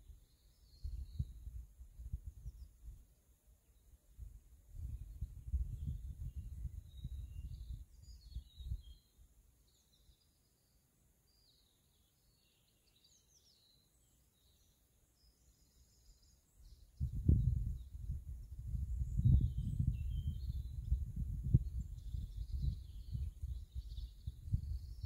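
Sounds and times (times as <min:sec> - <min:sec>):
small birds chirping: 0:00.0 - 0:25.0
wind gusts on microphone: 0:00.7 - 0:03.0, 0:04.2 - 0:09.0, 0:16.6 - 0:25.0.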